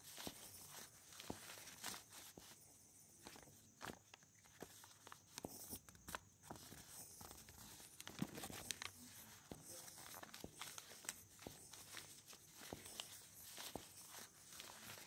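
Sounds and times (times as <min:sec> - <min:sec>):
pen scratching on paper: 0:00.0 - 0:03.5, 0:04.6 - 0:15.0
paper rustle: 0:00.0 - 0:15.0.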